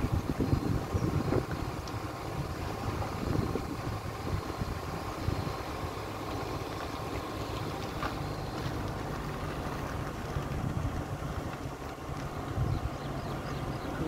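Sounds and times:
wind buffeting microphone: 0.0 - 6.6, 9.6 - 14.0
engine and tyre rumble: 0.0 - 14.0.

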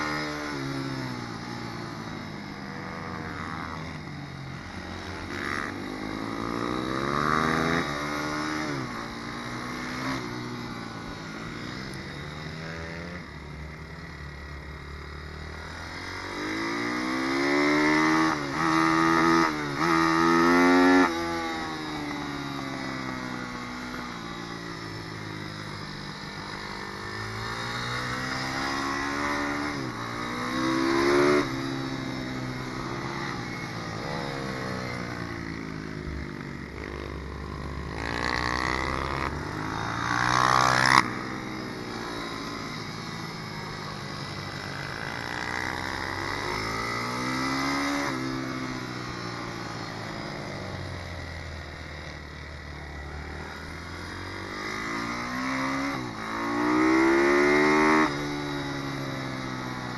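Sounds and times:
motorbike engine revving: 26.6 - 42.9, 53.1 - 59.9.

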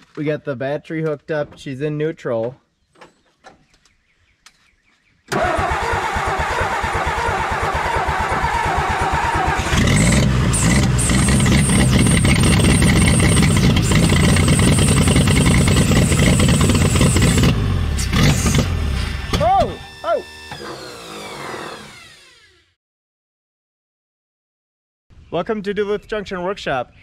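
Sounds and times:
engine cranking on starter: 5.3 - 22.7
engine running steadily: 5.4 - 22.2.

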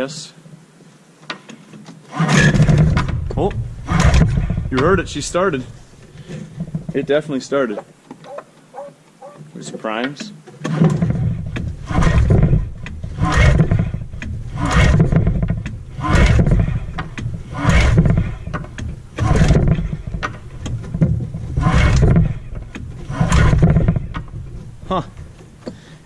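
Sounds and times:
recoil starter pulls on engine: 2.1 - 7.3, 10.5 - 26.0.

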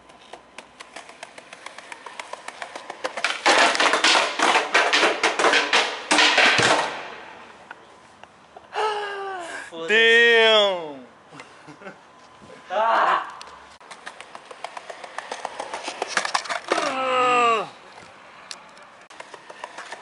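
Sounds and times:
skateboard rolling over paving: 0.3 - 6.9, 13.8 - 17.0, 19.1 - 20.0.

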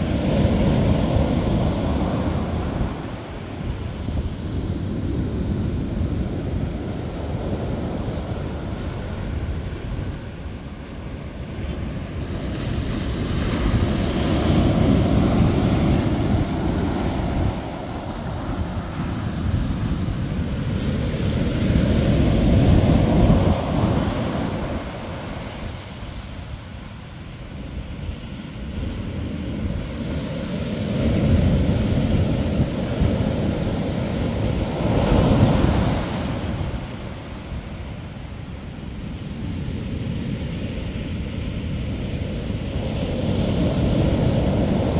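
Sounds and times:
ocean surf breaking: 0.0 - 44.9
big wave crashes: 27.7 - 38.8.

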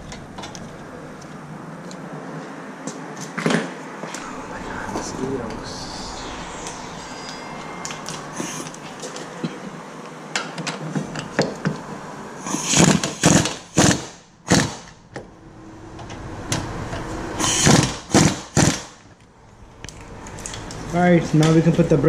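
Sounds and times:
pneumatic impact wrench hammering: 12.5 - 14.9.

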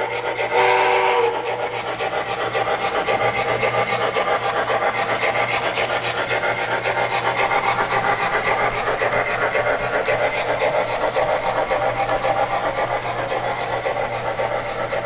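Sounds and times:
steam exhaust chuffs from speaker: 0.0 - 3.8.

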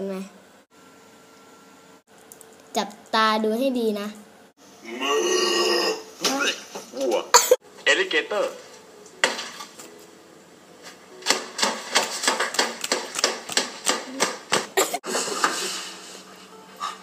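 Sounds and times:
plastic toy tapping on paper: 11.3 - 14.6.

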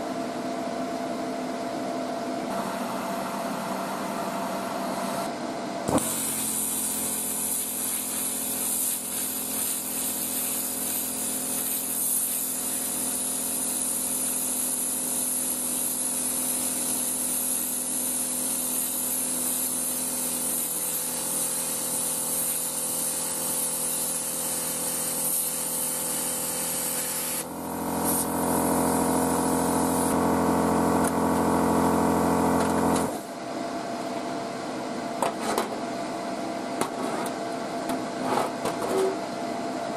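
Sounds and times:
compressor humming: 2.4 - 13.6, 26.6 - 33.5
plasma torch hissing: 5.9 - 33.3.

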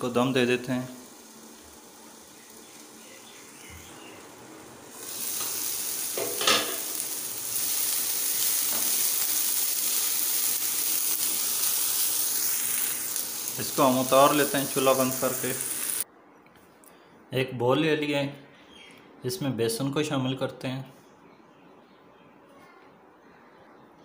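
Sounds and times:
vegetables sizzling in a pan: 0.0 - 16.0.

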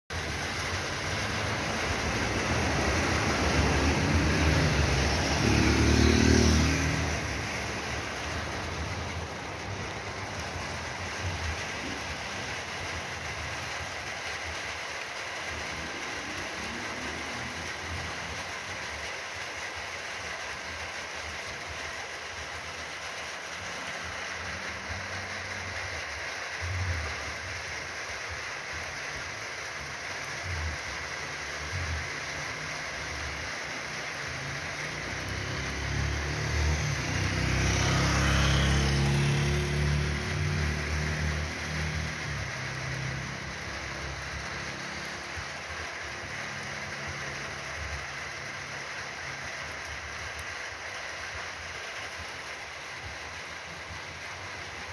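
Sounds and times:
rain hissing: 0.1 - 54.9
car driving past on wet road: 0.2 - 28.3, 29.6 - 54.9
motorcycle driving past: 0.6 - 12.4, 32.7 - 45.5.

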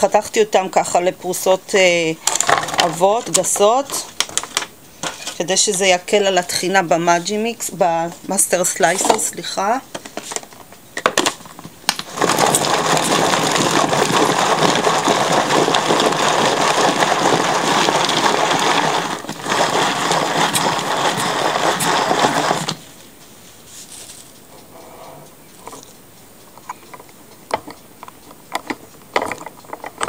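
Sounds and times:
food chopper blades clattering: 11.9 - 22.8.

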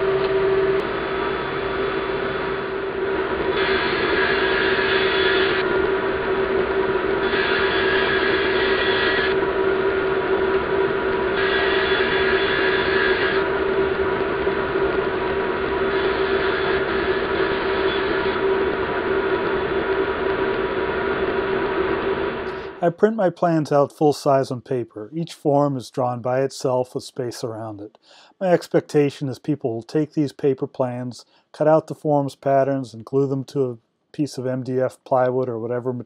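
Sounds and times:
rushing noise: 0.0 - 22.8
woodshop machinery humming: 0.0 - 22.8.

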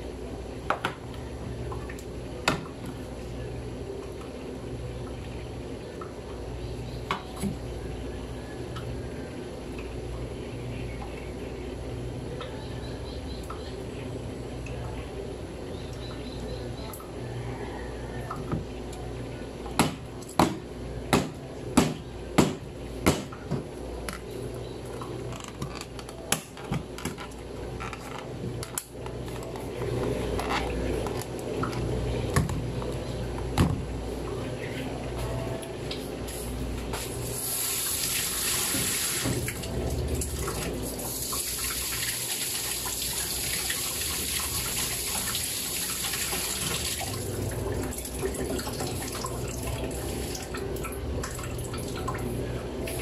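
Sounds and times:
steady low hum: 0.0 - 53.0.

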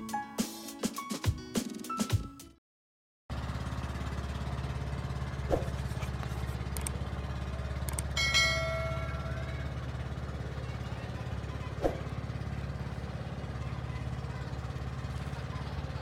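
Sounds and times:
small engine running: 3.3 - 16.0.

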